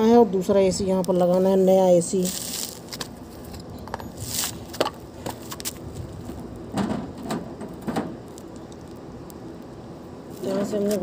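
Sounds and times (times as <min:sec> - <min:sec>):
footsteps scuffing on gritty concrete: 0:02.0 - 0:06.4.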